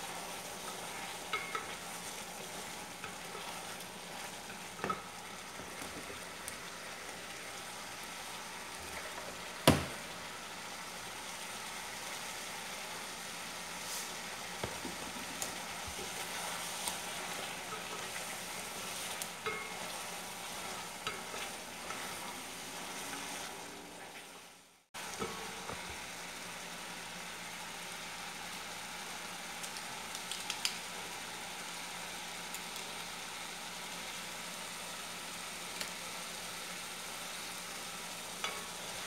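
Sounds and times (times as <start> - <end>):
wooden spoon scraping a pot: 0.0 - 5.1, 14.8 - 24.2
food sizzling in a pot: 0.0 - 39.0.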